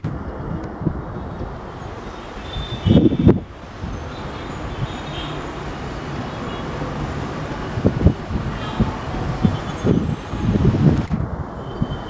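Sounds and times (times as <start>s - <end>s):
diesel locomotive engine rumble: 0.0s - 12.0s.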